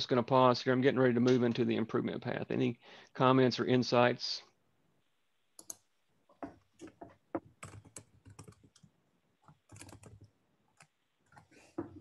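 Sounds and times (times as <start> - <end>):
typing on computer keyboard: 5.6 - 5.8, 6.8 - 11.5.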